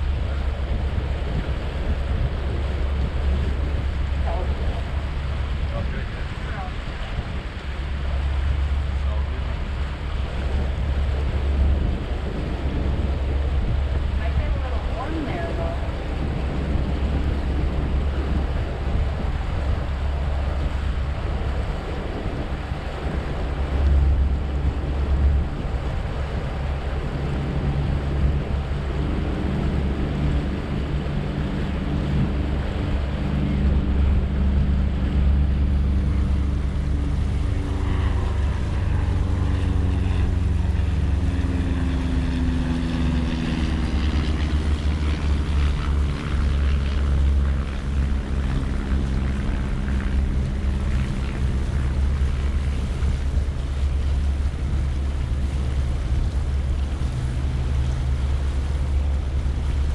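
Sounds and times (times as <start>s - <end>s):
boat engine droning: 0.0s - 59.9s
water and wind rushing: 0.0s - 59.9s.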